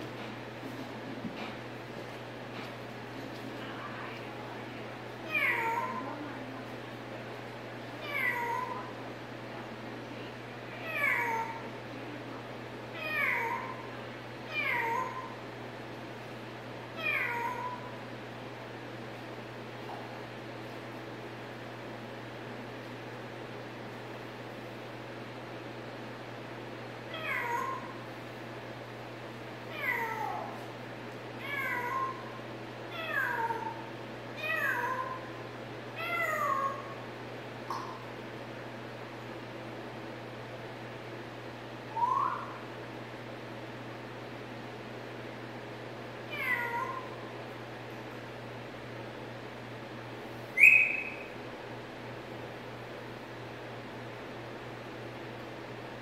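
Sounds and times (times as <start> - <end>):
parrot imitating cat meows: 5.3 - 6.0, 8.0 - 8.9, 10.8 - 11.7, 13.0 - 13.9, 14.5 - 15.4, 17.0 - 17.9, 27.1 - 27.9, 29.7 - 30.6, 31.4 - 32.3, 32.9 - 35.3, 36.0 - 37.0, 46.3 - 47.2.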